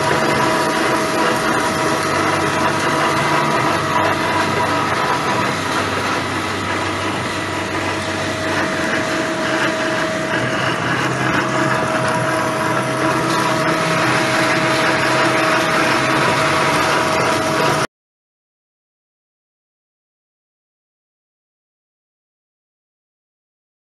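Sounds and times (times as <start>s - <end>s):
band saw humming with whine: 0.0s - 17.9s.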